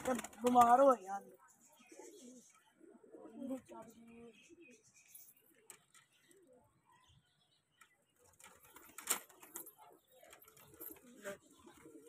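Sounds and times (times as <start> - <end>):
pigeons cooing: 8.8 - 12.0.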